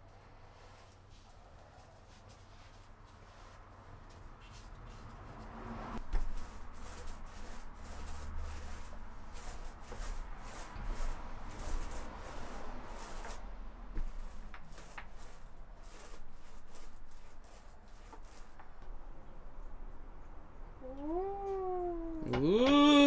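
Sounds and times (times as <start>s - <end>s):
paint roller rubbing strokes: 0.4s - 5.1s, 6.0s - 13.4s, 14.0s - 18.7s.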